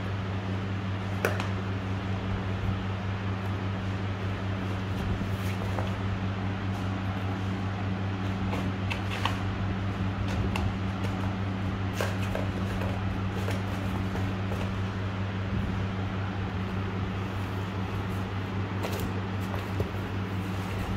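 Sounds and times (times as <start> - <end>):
kittens scratching and tapping: 4.6 - 6.1, 8.1 - 15.1, 17.2 - 20.9
cardboard box scuffling on floor: 4.6 - 9.5, 10.2 - 15.0, 17.2 - 20.9.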